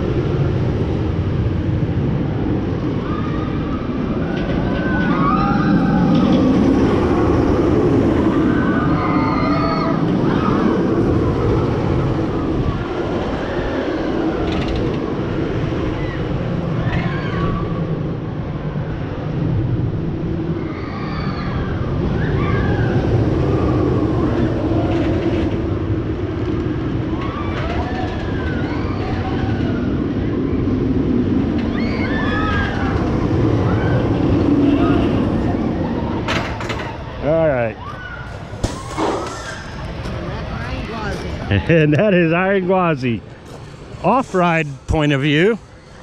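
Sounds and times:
roller coaster rumble: 0.0 - 46.0
riders screaming: 4.7 - 6.3, 8.3 - 14.6, 15.8 - 17.9, 20.6 - 25.0, 27.0 - 30.7, 31.5 - 40.0.

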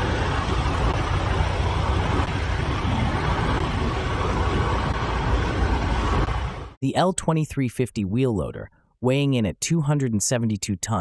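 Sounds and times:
vehicle low rumble: 0.0 - 6.8.

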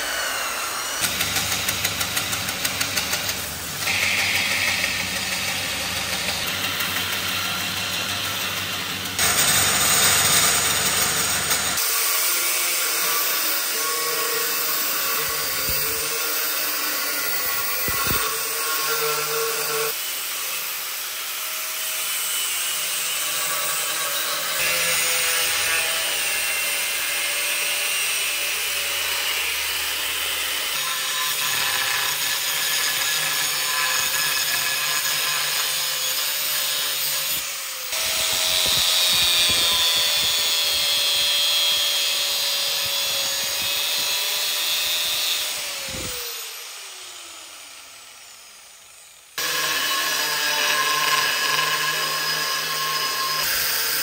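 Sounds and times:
grinding and sanding steel: 0.0 - 54.0
power tool motor whine: 17.3 - 18.4, 37.3 - 53.7.

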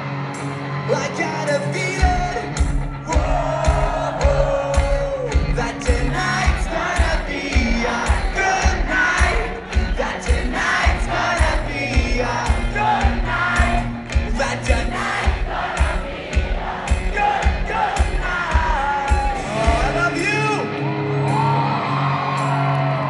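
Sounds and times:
crowd singing and shouting along: 0.0 - 23.0
live pop-punk rock band: 0.0 - 23.0
kick-drum beat: 2.0 - 20.2.

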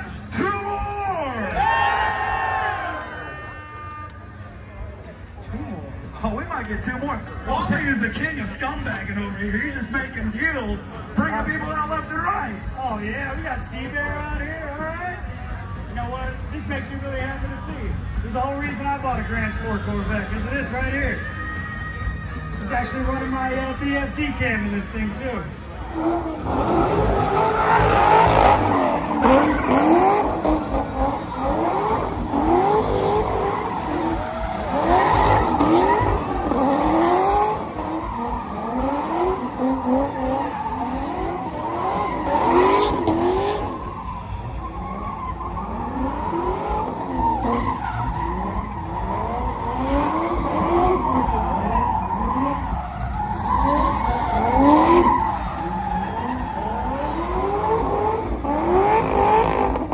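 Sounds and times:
car engine revving: 22.6 - 59.9.

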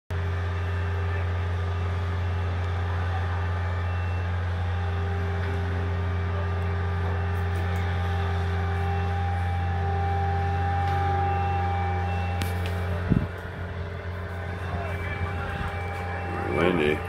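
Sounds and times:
heavy machinery engine running: 0.1 - 17.0.

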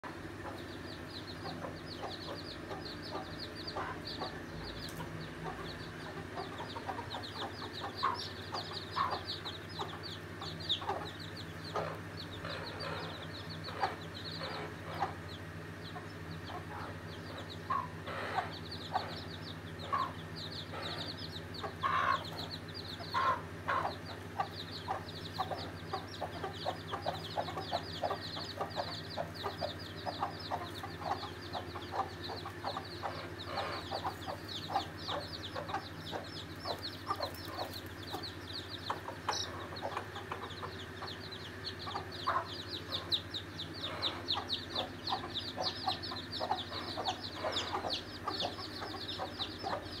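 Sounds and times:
chicks peeping: 0.0 - 50.0
hens clucking: 0.1 - 50.0
loud chicken calls: 16.7 - 40.9.

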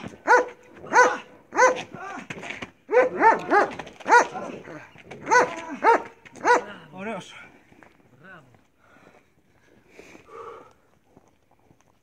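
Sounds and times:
dog barking sharply: 0.3 - 1.9, 2.9 - 4.4, 5.3 - 6.7.

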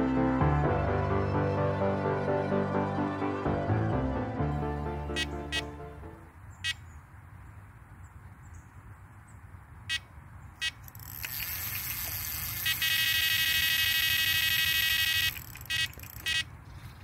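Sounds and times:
bite alarm beeps: 5.2 - 5.7, 12.6 - 16.5
bite alarm continuous tone: 5.2 - 5.7, 12.4 - 16.5.

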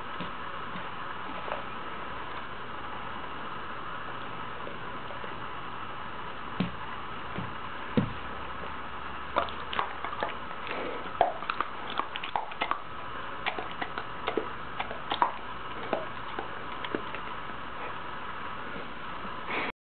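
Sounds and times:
dog teeth and tongue clicks: 9.4 - 12.8, 13.4 - 17.3.

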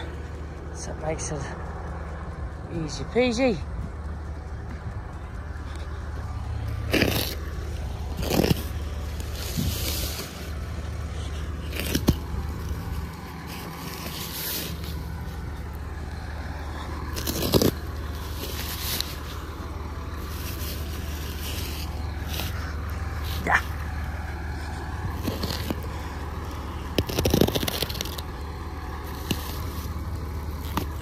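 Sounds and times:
plastic wrap ripping: 26.9 - 28.3.

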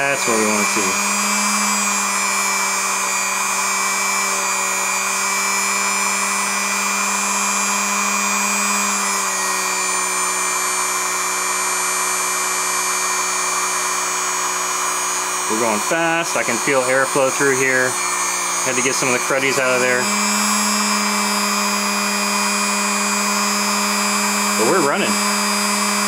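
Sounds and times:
electric motor whirring: 0.0 - 26.0.

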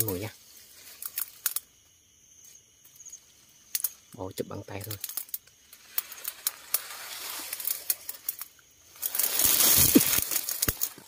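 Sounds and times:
leaves and undergrowth rustling: 0.0 - 11.0
crashing rustle with thumps: 9.0 - 11.0.

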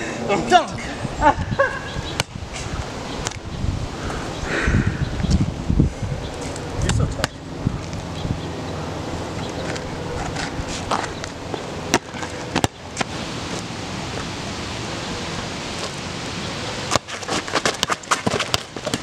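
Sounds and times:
ball bouncing on asphalt: 9.6 - 13.2, 16.9 - 19.0.

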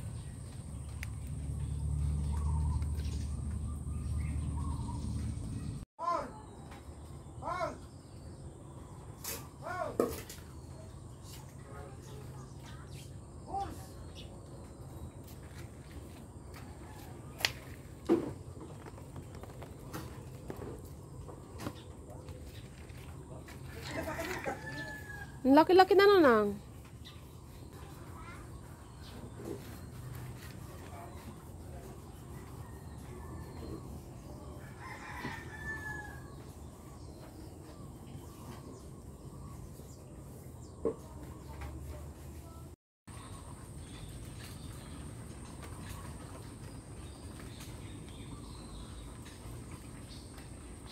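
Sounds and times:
footsteps on a path: 14.9 - 25.4
rooster crowing: 23.8 - 25.4, 34.6 - 36.3.

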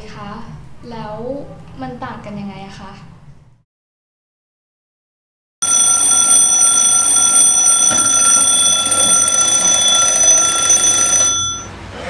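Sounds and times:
alarm clock ringing: 5.6 - 11.7.

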